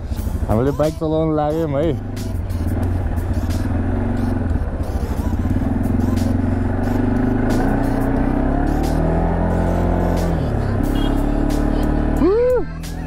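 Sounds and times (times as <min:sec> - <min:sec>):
four-wheeler engine running: 0:00.0 - 0:13.0.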